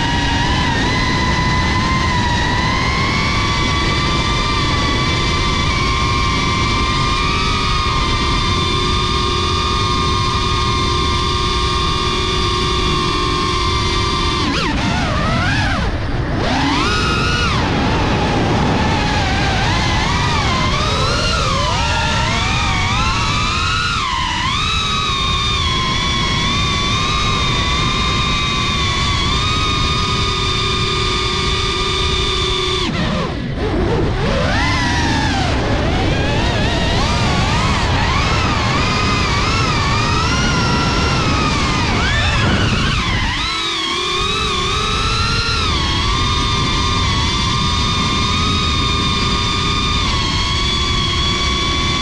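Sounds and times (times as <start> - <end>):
quadcopter motors whining: 0.0 - 52.0.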